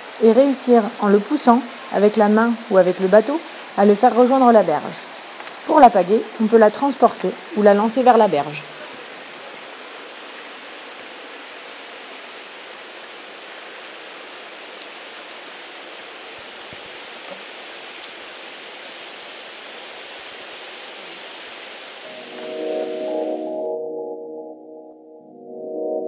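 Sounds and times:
river current rushing: 0:00.0 - 0:23.6
music: 0:22.1 - 0:26.0.

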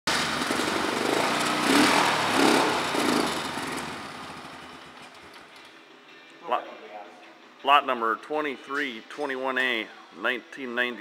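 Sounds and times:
atv engine throttle blips: 0:00.1 - 0:05.4
atv engine running: 0:00.1 - 0:05.7.

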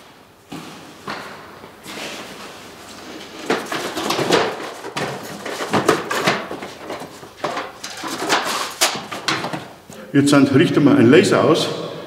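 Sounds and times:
cardboard scraping and rustling: 0:01.8 - 0:09.8.

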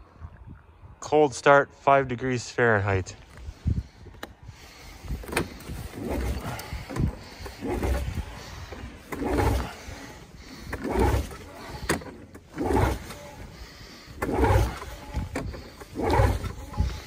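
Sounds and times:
pull-starter rasping whoosh: 0:05.2 - 0:17.0.

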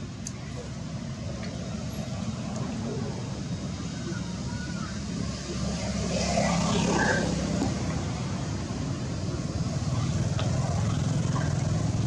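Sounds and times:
engine drone: 0:00.0 - 0:12.0.

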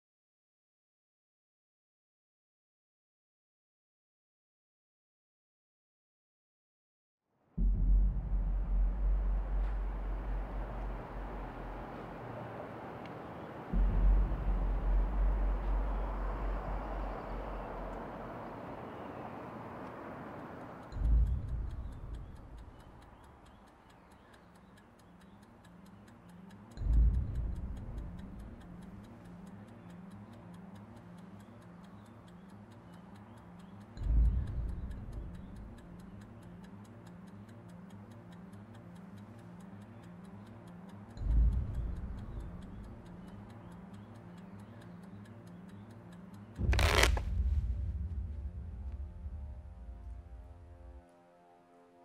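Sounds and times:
deep boom: 0:07.6 - 0:11.8, 0:13.8 - 0:17.5, 0:46.6 - 0:50.8
kitchen timer ticking: 0:20.8 - 0:46.6
playing cards shuffled: 0:46.6 - 0:47.4.

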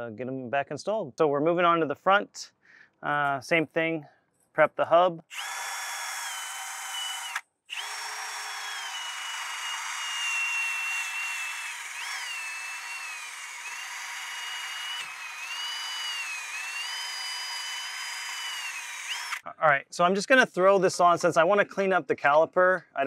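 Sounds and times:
drill motor whine: 0:05.3 - 0:19.4.

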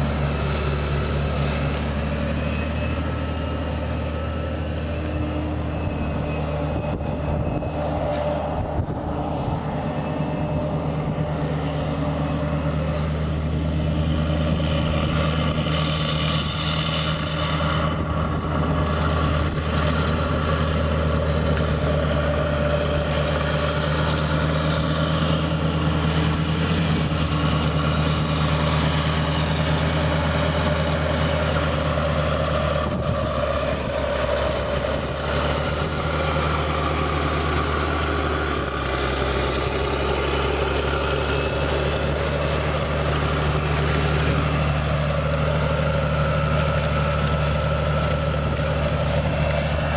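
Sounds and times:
tractor diesel engine running: 0:00.0 - 0:49.9.

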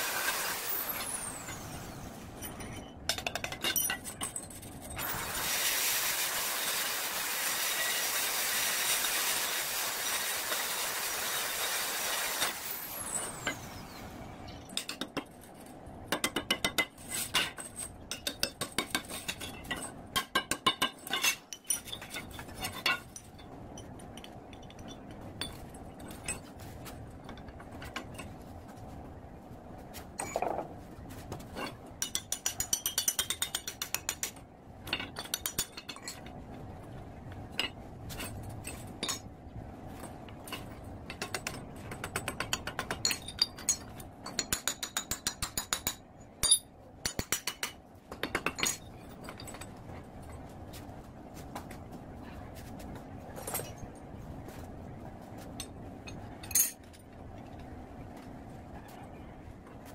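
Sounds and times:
arc welding hiss: 0:00.0 - 0:01.2, 0:05.0 - 0:13.2
metal parts knocking and clinking: 0:01.0 - 0:05.2, 0:14.7 - 0:26.6, 0:40.0 - 0:50.3, 0:56.1 - 0:57.2.

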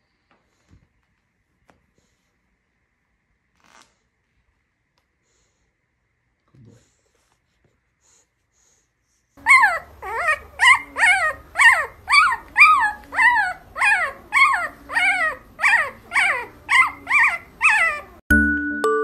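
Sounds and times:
puppy whimpering: 0:09.4 - 0:18.2.

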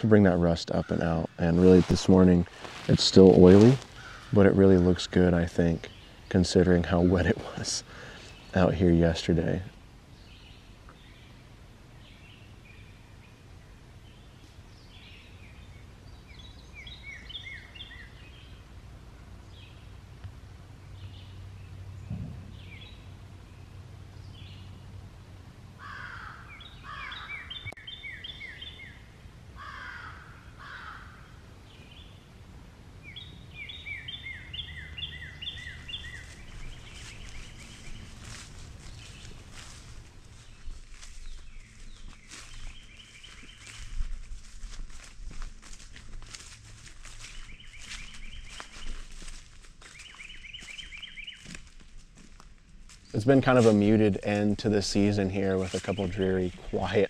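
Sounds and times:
low ambient rumble: 0:00.0 - 0:57.0
songbirds singing: 0:00.0 - 0:57.0
low bird calls: 0:00.7 - 0:08.8, 0:20.8 - 0:25.0, 0:25.8 - 0:32.3, 0:33.0 - 0:52.3
rustling: 0:01.2 - 0:05.1, 0:35.5 - 0:56.3.

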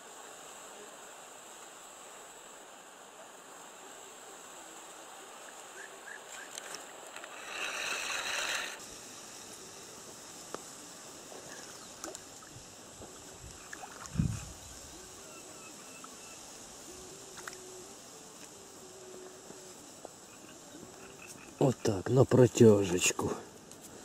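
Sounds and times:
steady high hiss: 0:00.0 - 0:24.0
faint chirps: 0:07.4 - 0:22.2.

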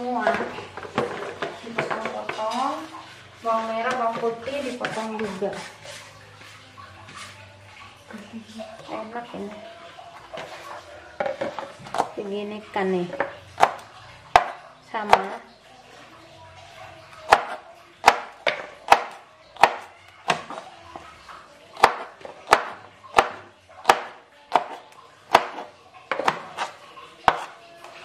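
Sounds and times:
knife chopping vegetables: 0:03.8 - 0:06.1, 0:13.6 - 0:15.4, 0:17.2 - 0:20.6, 0:21.8 - 0:27.6.

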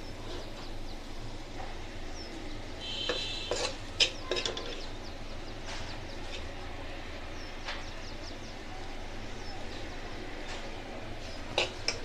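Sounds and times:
spoon stirring and scraping pan: 0:02.8 - 0:04.9, 0:11.2 - 0:12.0.

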